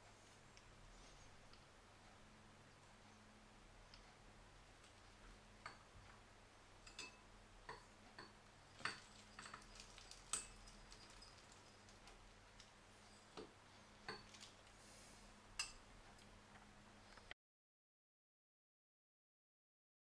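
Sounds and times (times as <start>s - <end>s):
faint steady hum: 0.0s - 17.4s.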